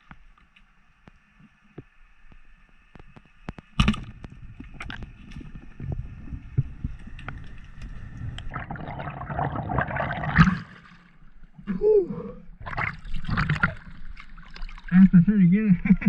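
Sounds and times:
water sloshing and splashing: 3.6 - 11.6, 12.6 - 15.1
muffled underwater rushing: 3.8 - 16.0.

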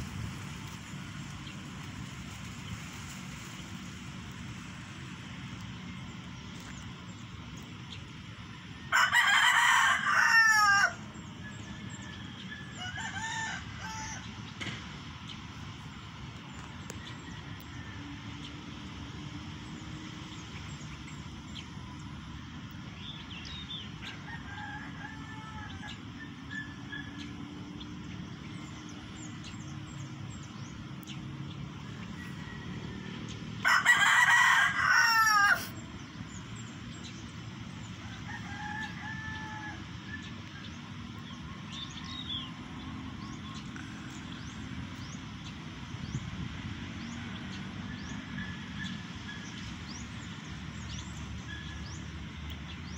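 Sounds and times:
steady outdoor hiss: 0.0 - 52.9
rooster crowing: 8.8 - 14.4, 24.0 - 27.3, 32.2 - 35.8, 38.0 - 40.3.

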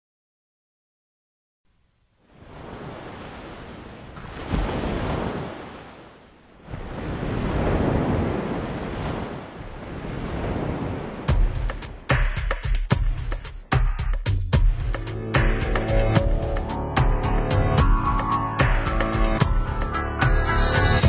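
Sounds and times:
ocean surf washing ashore: 2.3 - 12.4.

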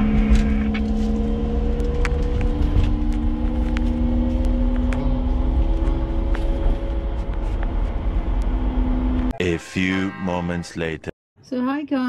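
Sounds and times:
car engine hum and road noise: 0.0 - 10.9.

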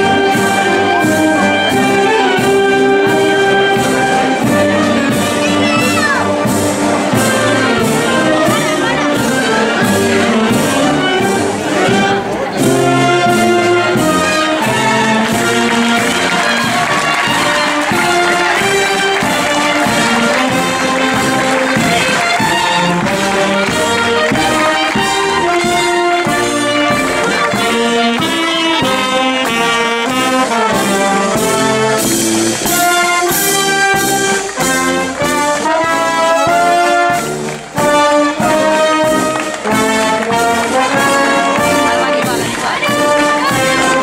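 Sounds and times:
steady drum beat: 0.0 - 44.0
trumpets and trombones melody: 0.0 - 44.0
wind band playing: 0.0 - 44.0.

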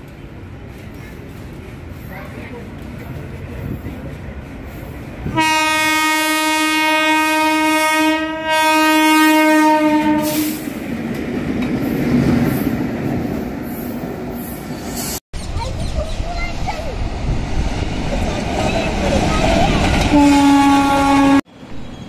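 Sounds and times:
train wheels rumbling and clattering: 0.0 - 5.4, 10.0 - 22.0
locomotive horn blasts: 5.3 - 10.6, 20.1 - 21.5.

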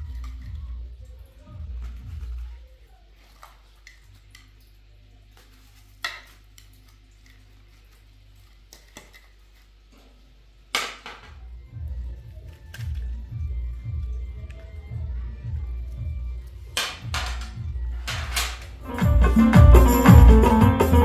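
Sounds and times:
low steady hum: 0.0 - 20.7
dishes and utensils clattering: 16.8 - 18.8.

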